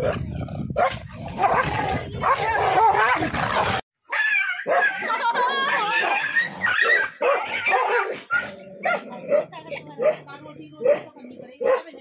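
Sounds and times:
dogs fighting: 0.0s - 12.0s
dogs yipping and whining: 4.1s - 9.0s.

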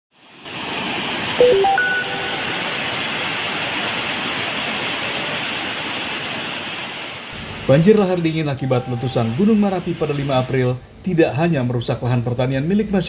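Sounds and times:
rushing flood of water: 0.2s - 7.4s
electronic beeps: 1.4s - 2.6s.

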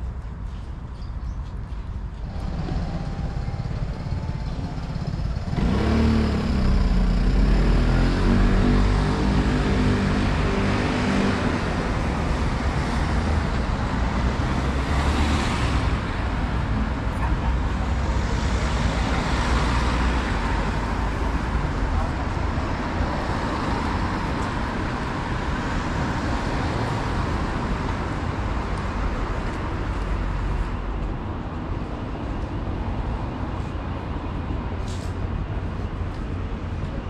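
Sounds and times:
engine low hum: 1.7s - 10.6s
cars driving past: 2.0s - 37.0s.

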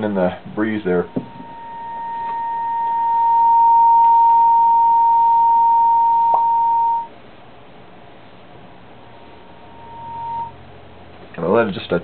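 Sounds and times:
high test tone: 0.9s - 7.1s, 9.6s - 10.6s.

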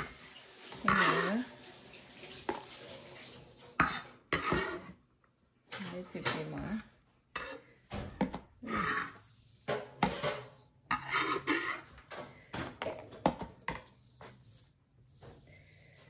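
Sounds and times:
utensils and dishes clinking: 9.7s - 13.2s.

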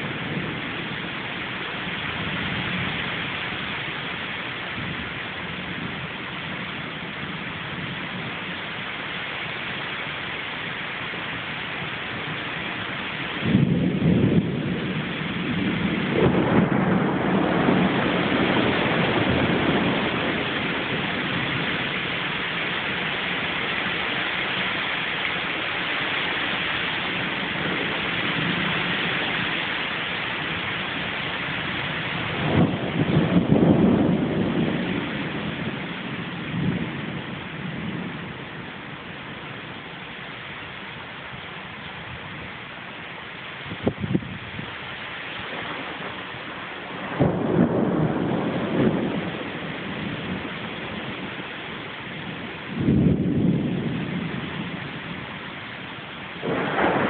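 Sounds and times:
rain hissing: 0.0s - 57.0s
thunder burst: 13.3s - 38.8s, 45.4s - 55.4s, 56.2s - 57.0s.

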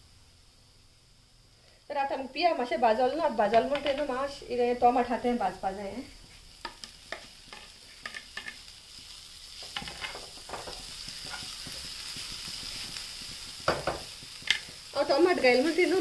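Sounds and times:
vegetables sizzling in hot oil: 0.0s - 16.0s
wooden spoon scraping a pan: 9.6s - 14.8s.

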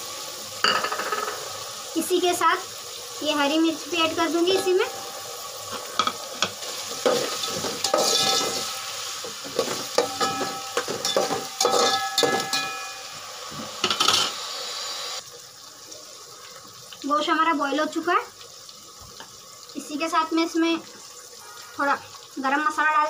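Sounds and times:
food sizzling: 0.0s - 23.0s
metal spoon scraping a pot: 5.7s - 8.7s, 9.4s - 12.9s.

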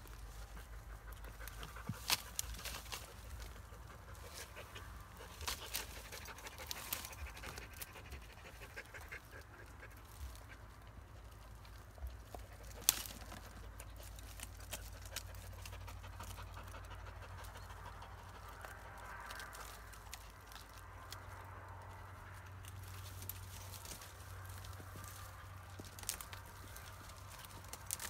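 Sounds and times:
dog panting hard: 15.1s - 18.5s.

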